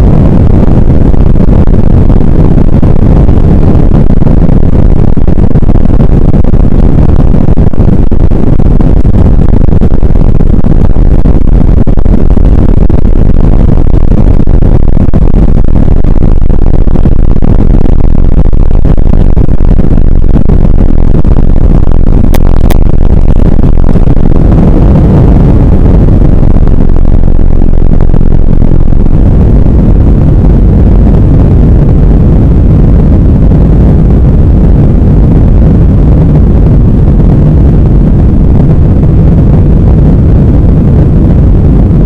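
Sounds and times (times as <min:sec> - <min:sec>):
airliner cabin rumble: 0:00.0 - 0:42.0.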